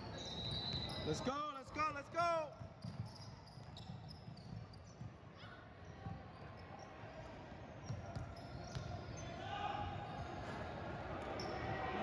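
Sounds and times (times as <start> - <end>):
sneaker squeaks: 0.0 - 1.6, 2.5 - 7.0, 7.8 - 9.4, 11.2 - 11.8.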